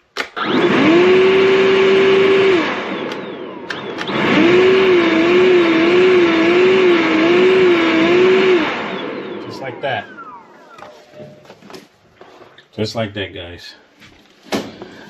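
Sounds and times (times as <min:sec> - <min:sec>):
leaf blower rush of air: 0:00.5 - 0:09.5.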